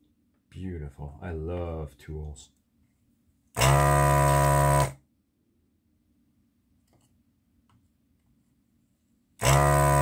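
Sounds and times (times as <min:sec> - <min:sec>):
desoldering pump buzzing: 0:03.6 - 0:05.0, 0:09.4 - 0:10.0.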